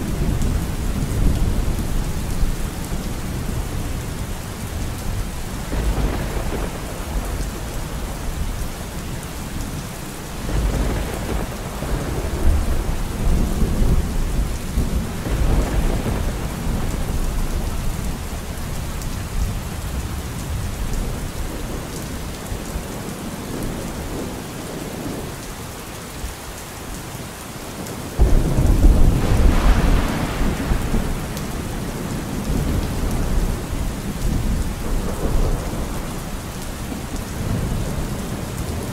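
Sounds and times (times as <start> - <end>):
low thunder rumbling: 0.0 - 25.2, 28.1 - 38.9
steady rain: 0.0 - 38.9
loud thunderclap: 5.6 - 8.2, 10.4 - 17.6, 28.2 - 36.1.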